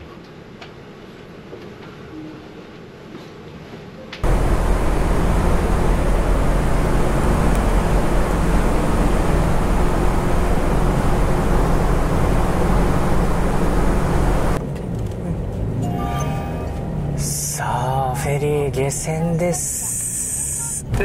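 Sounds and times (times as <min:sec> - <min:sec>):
ship engines rumbling: 0:04.2 - 0:14.6, 0:15.3 - 0:21.0.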